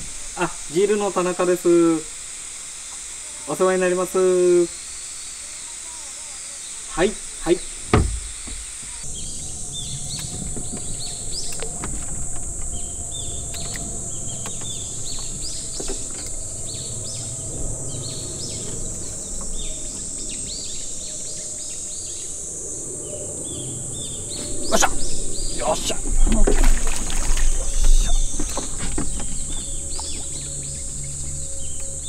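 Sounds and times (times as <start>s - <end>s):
birds calling: 3.0s - 32.0s
high-pitched drone: 8.8s - 32.0s
low rumble: 9.0s - 32.0s.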